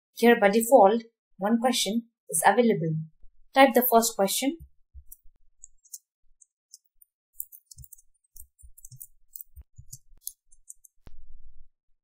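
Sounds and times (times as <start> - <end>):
faint keyboard typing: 5.0 - 11.2.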